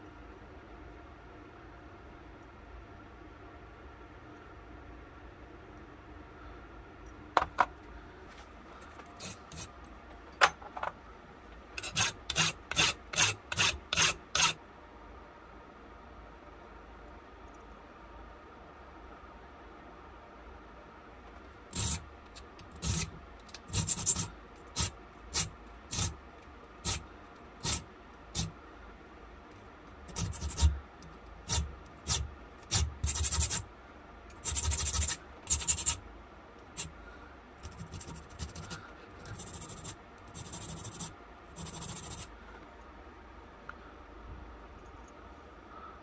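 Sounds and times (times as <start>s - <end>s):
file rasping on metal: 9.2s - 9.7s, 11.8s - 14.6s, 21.7s - 26.2s, 26.8s - 28.6s, 30.0s - 33.7s, 34.3s - 36.0s, 37.6s - 42.3s.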